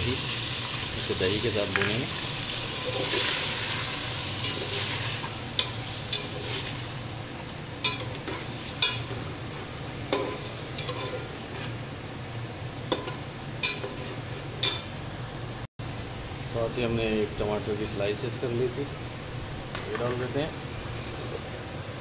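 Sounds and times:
chicken sizzling in hot oil: 0:00.0 - 0:11.9.

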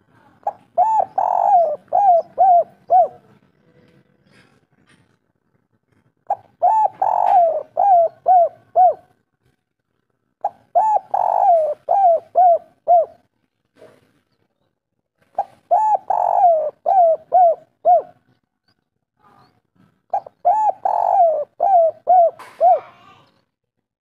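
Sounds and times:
dove cooing: 0:00.4 - 0:03.7, 0:06.2 - 0:09.2, 0:10.4 - 0:13.3, 0:15.3 - 0:18.3, 0:20.1 - 0:23.3.

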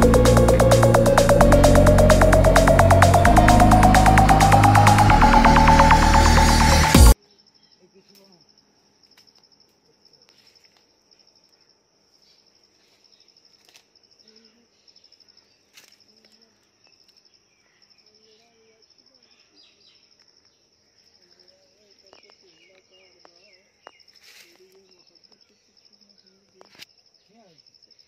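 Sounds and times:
faint bird chirps: 0:07.2 - 0:09.3.

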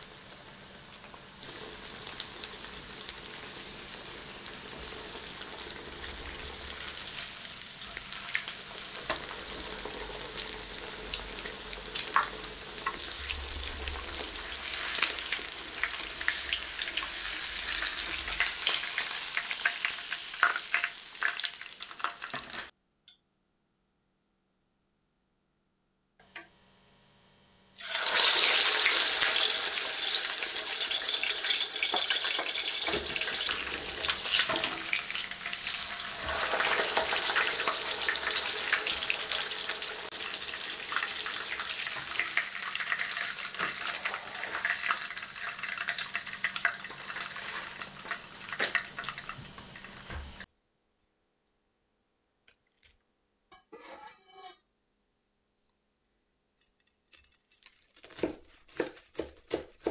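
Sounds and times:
cutlet sizzling in oil: 0:00.0 - 0:22.7, 0:27.8 - 0:50.5.

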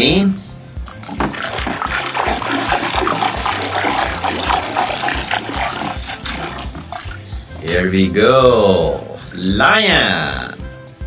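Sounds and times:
water splashing in a plastic tub: 0:00.8 - 0:07.8
toy rubbed in water: 0:00.9 - 0:07.5.

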